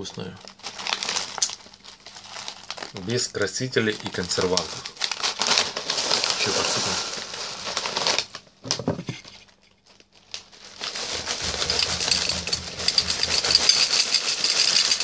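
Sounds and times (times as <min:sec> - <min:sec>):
plastic bag crinkling: 0:00.0 - 0:08.5, 0:09.3 - 0:15.0
cereal pouring into a bowl: 0:04.0 - 0:08.3, 0:10.7 - 0:15.0.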